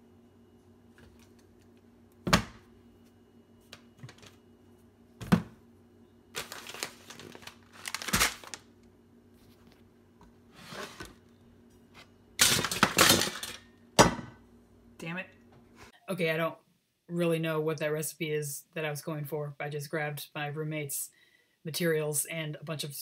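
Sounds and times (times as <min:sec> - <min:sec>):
items set down on countertop: 0:05.2 - 0:05.6
plastic packaging crinkling: 0:06.3 - 0:08.9.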